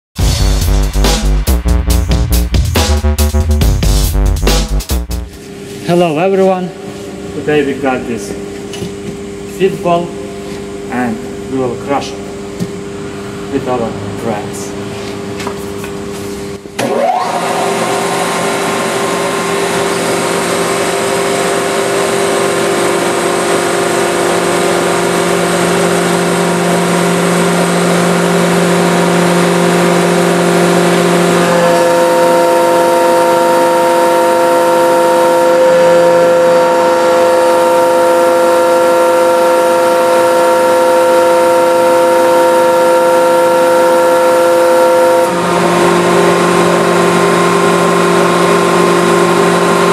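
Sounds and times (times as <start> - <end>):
hydraulic press whining: 14.8 - 49.9.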